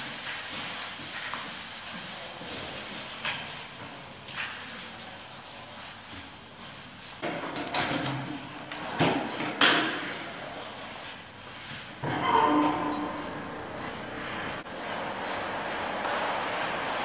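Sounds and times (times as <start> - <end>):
mop swishing over wet floor: 0.0 - 7.2, 13.2 - 17.0.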